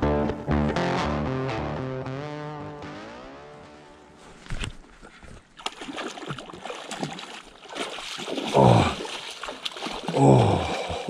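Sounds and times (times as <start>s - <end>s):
fish thrashing in water: 5.4s - 11.0s.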